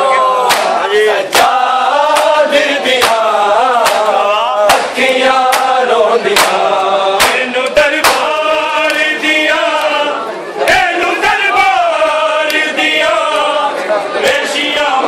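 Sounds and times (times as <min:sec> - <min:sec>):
group of men chanting: 0:00.0 - 0:15.0
hands beating on chests: 0:03.0 - 0:04.1.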